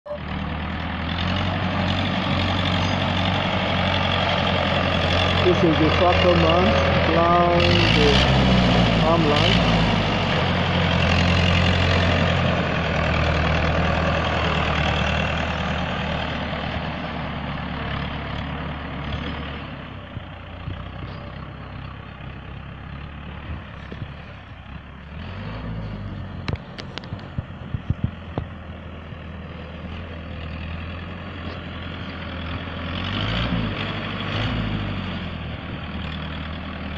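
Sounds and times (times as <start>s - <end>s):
tractor diesel engine under load: 0.1s - 36.9s.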